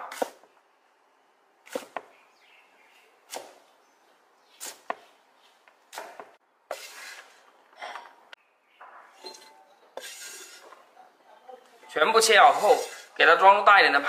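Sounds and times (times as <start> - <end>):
cleaver chopping on wooden board: 3.3 - 3.6
scraping rustle on cutting board: 6.7 - 7.5, 10.0 - 10.8, 12.3 - 13.2.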